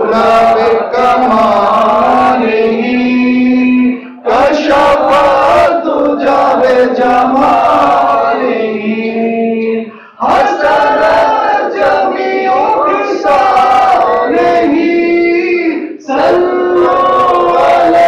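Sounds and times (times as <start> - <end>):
man singing a cappella: 0.0 - 18.0.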